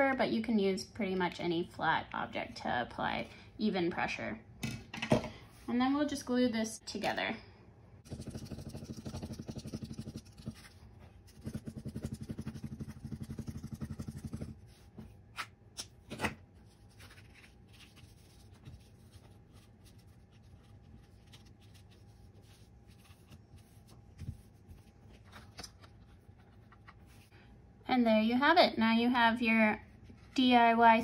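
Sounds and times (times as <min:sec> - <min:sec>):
glue stick rubbing on card: 0:08.1 - 0:14.6
paper handling: 0:15.0 - 0:27.3.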